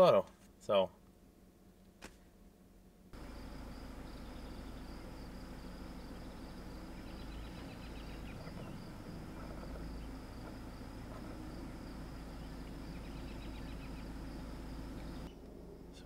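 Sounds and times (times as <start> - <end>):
bird chirps: 3.2 - 16.0
high insect drone: 3.2 - 16.0
low rumble: 3.2 - 16.0.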